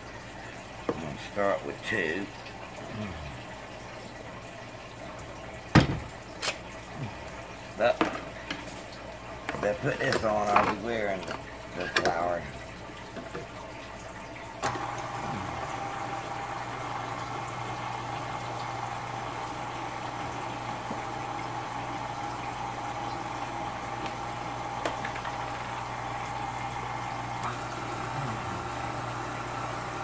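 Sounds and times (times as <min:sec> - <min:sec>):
stand mixer motor running: 0:14.6 - 0:30.0.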